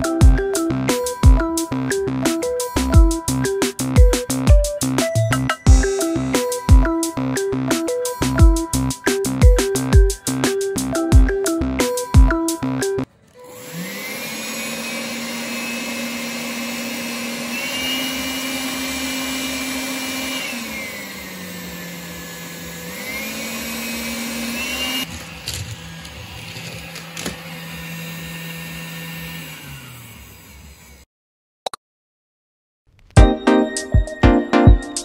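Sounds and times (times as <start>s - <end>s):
cordless vacuum motor whine: 13.3s - 31.1s.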